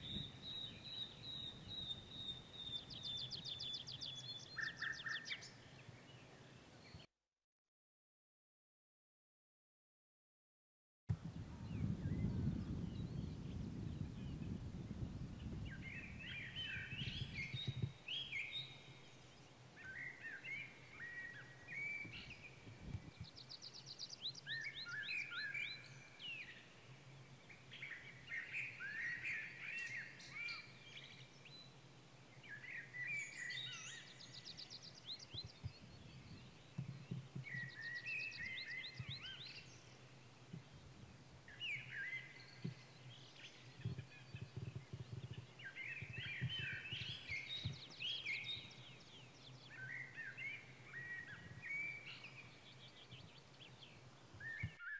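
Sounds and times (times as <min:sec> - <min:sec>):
wind rumble on microphone: 0:00.0 - 0:04.2, 0:11.1 - 0:18.9, 0:21.1 - 0:23.6, 0:35.0 - 0:39.9, 0:40.5 - 0:49.0, 0:49.8 - 0:53.4
songbirds warbling: 0:00.0 - 0:07.0, 0:11.6 - 0:54.9.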